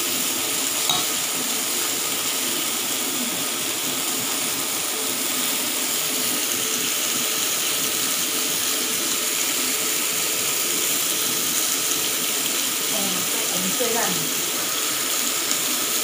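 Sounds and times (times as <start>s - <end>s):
chicken sizzling on grill pan: 0.0s - 16.0s.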